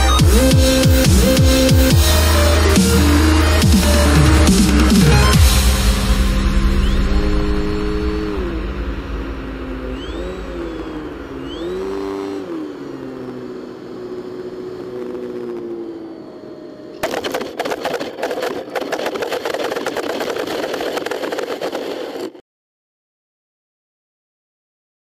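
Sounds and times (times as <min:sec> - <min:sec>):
electric motor and propeller whining: 0:00.0 - 0:22.4
airframe scraping across snow: 0:17.0 - 0:22.4.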